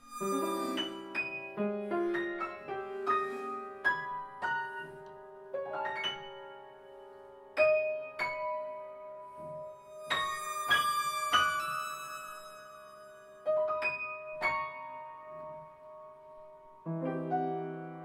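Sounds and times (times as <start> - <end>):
long held note: 0.0 - 1.2.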